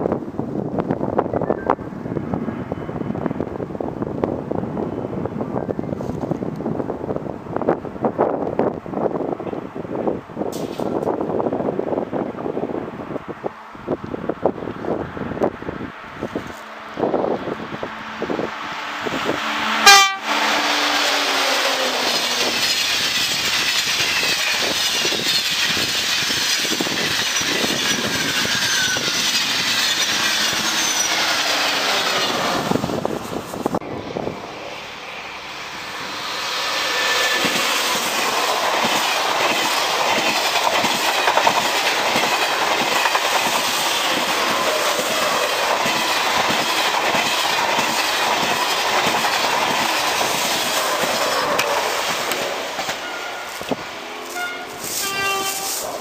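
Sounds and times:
train wheels rolling on rail: 0.0 - 56.0
train horn: 19.0 - 21.6, 52.9 - 56.0.

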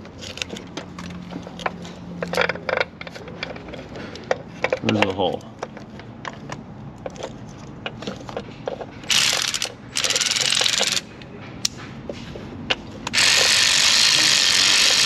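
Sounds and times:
power ratchet whirring: 9.0 - 11.1, 13.1 - 15.0.

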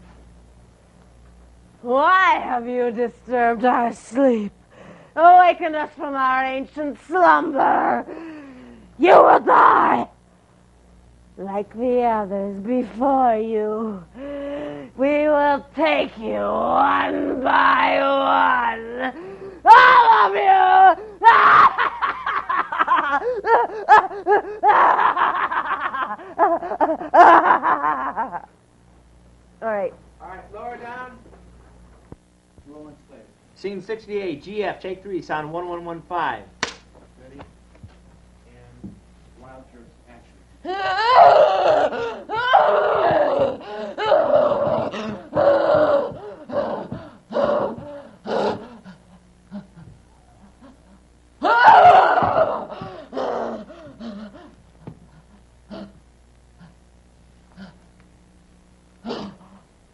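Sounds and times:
cackling laugh: 21.5 - 28.5.

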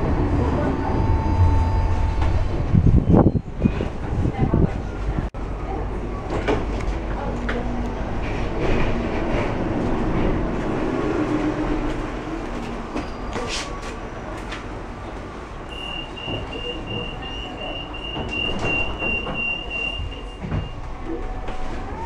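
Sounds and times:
tram interior hum: 0.0 - 22.0
pulsing door warning beep: 15.7 - 20.8.

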